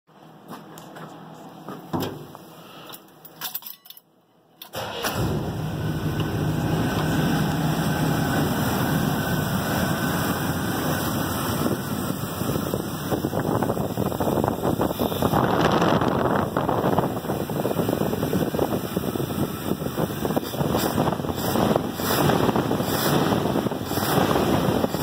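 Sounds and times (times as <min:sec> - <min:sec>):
truck door and keys clicking: 0:02.0 - 0:04.8
engine starting and idling: 0:04.6 - 0:12.0.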